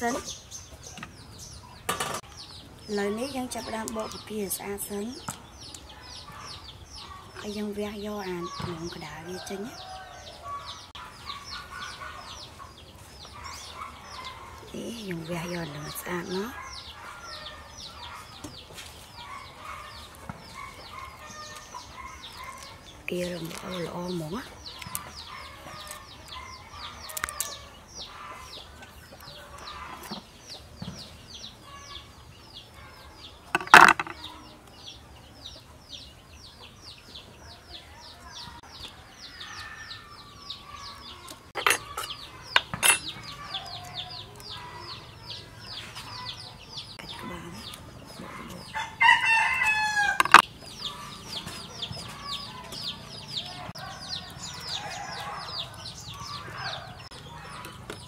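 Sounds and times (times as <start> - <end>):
chickens clucking: 0.0 - 58.0
rooster crowing: 9.1 - 10.8, 48.7 - 50.4.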